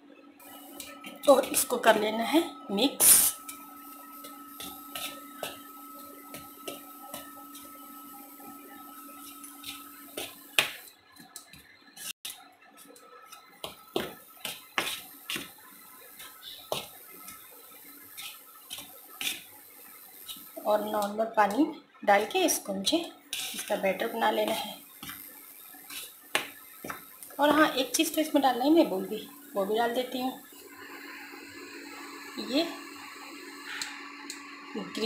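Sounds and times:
spoon scraping flour in bowl: 23.3 - 23.8.

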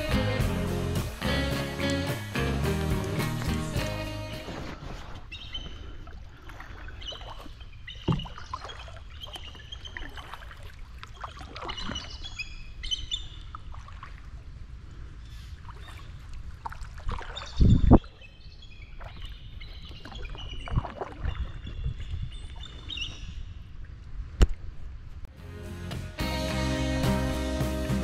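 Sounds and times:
outdoor noise rush: 0.0 - 5.2
birds chirping: 5.3 - 6.0, 6.6 - 10.2.

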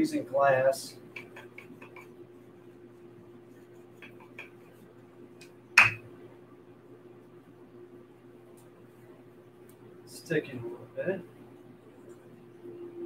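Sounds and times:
steady low hum: 0.0 - 13.0
dough taps on wooden board: 5.8 - 6.0.

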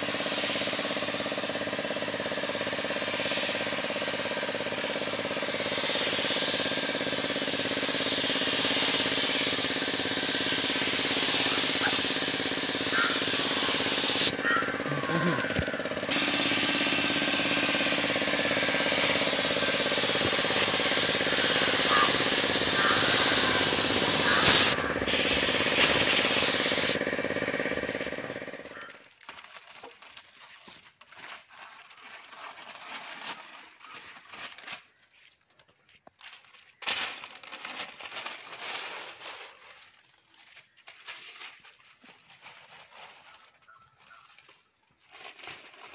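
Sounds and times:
paint spray gun hissing: 0.0 - 28.8
air compressor hum: 0.0 - 29.0
newspaper rustling: 29.0 - 45.9.

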